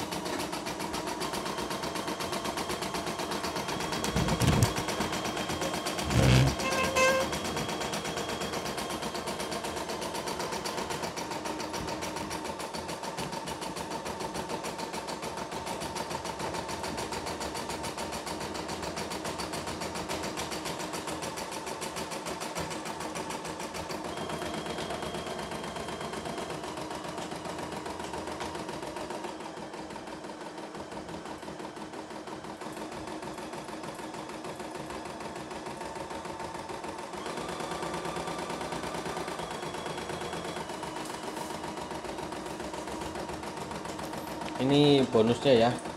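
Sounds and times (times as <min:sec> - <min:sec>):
embroidery machine stitching: 0:00.0 - 0:12.7, 0:30.4 - 0:45.9.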